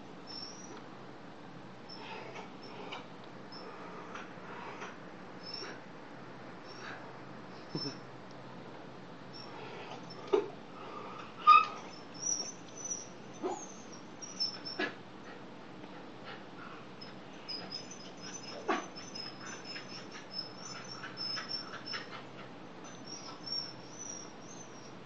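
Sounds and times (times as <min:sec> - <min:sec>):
dog whimpering and yipping: 0:00.3 - 0:00.8, 0:05.4 - 0:05.8, 0:07.6 - 0:08.0, 0:11.4 - 0:15.0, 0:17.0 - 0:25.0.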